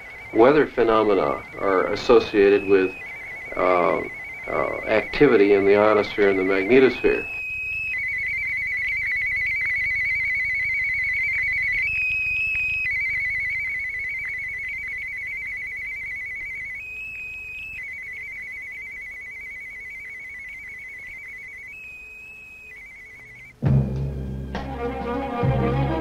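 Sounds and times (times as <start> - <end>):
electronic warbling tone: 0.0 - 23.5.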